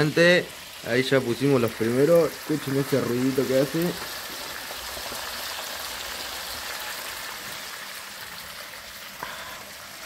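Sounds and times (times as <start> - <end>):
fish frying in hot oil: 0.0 - 10.0.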